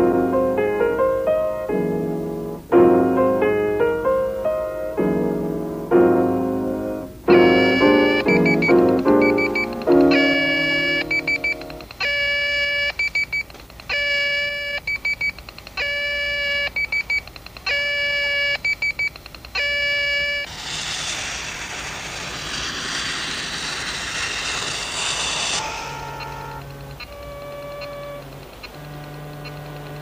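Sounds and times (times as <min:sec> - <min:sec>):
held electronic tone: 0:07.4 - 0:11.7, 0:19.6 - 0:28.2
quick short beeps: 0:07.5 - 0:12.2
steady hiss: 0:20.5 - 0:29.9.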